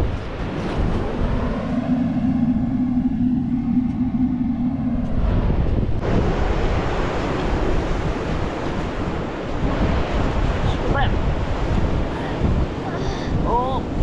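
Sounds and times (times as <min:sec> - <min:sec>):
steady low hum: 0:00.0 - 0:10.6
ocean surf: 0:00.0 - 0:14.0
wind buffeting microphone: 0:00.0 - 0:14.0.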